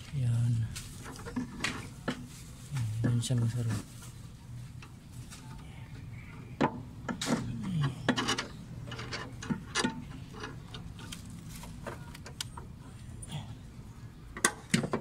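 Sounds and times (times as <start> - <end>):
steady low hum: 0.0 - 15.0
metal and plastic parts tapping: 6.6 - 12.6.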